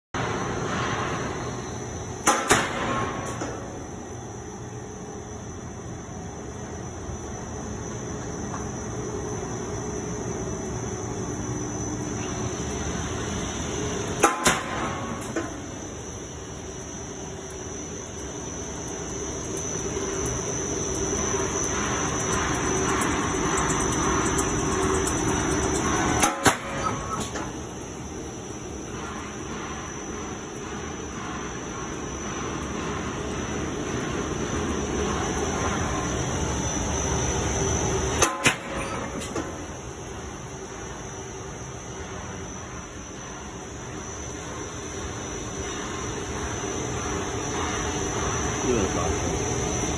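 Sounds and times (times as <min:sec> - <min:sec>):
plant machinery droning: 0:15.3 - 0:39.5, 0:42.5 - 0:49.9.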